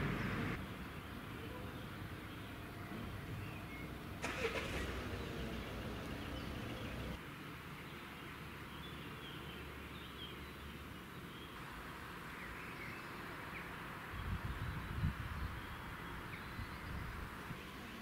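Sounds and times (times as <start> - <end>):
steady background hiss: 2.0 - 14.2.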